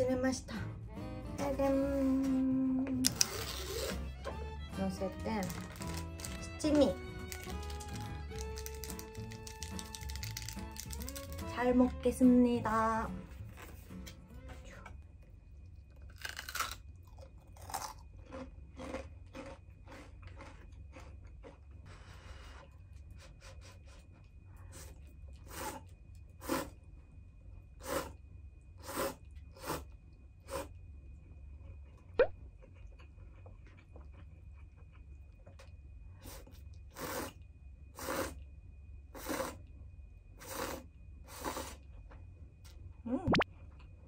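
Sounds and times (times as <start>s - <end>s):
slurping noodles: 3.1s - 4.1s, 26.4s - 26.8s, 28.8s - 29.9s, 36.3s - 37.4s, 38.0s - 38.4s, 39.2s - 39.6s, 40.4s - 41.8s.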